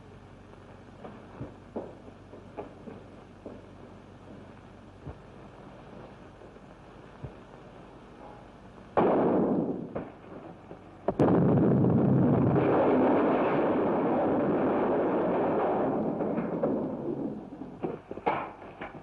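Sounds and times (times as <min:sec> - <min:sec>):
dynamite explosion: 0:08.9 - 0:19.0.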